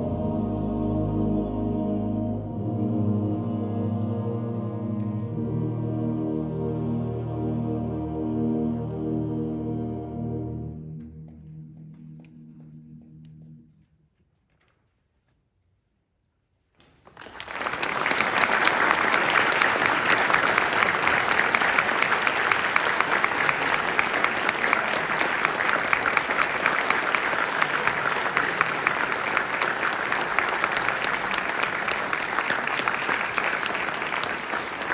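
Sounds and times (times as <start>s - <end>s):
audience applauding: 17.0s - 34.9s.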